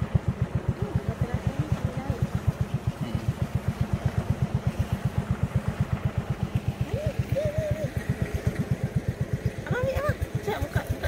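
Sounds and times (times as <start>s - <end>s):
boat engine pulsing: 0.0s - 11.0s
wavering pitched call: 6.8s - 8.0s.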